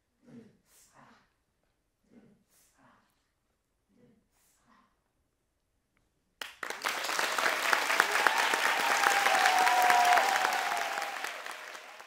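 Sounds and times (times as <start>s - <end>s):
audience applauding: 6.4s - 12.0s.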